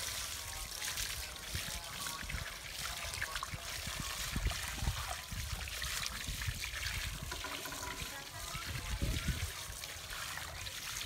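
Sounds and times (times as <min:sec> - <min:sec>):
hose water splashing on rug: 0:00.0 - 0:11.0.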